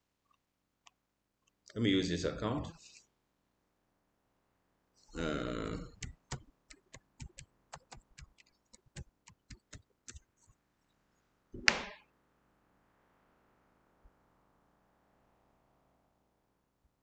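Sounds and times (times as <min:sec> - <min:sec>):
keyboard keys clicking: 0:05.9 - 0:10.2.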